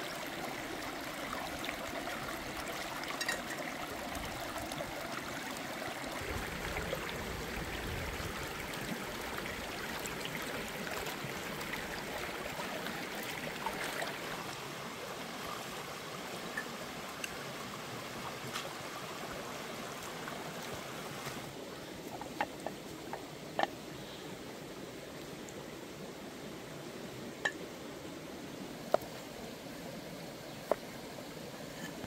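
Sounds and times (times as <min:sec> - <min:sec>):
stream running over rocks: 0:00.0 - 0:32.0.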